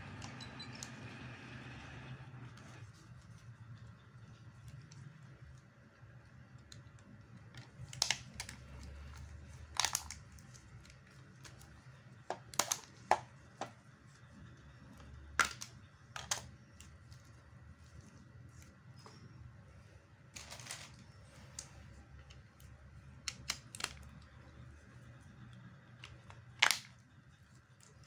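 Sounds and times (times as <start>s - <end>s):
plastic parts clicking and snapping: 4.2s - 13.8s, 14.9s - 17.4s, 20.3s - 25.2s, 25.8s - 28.0s.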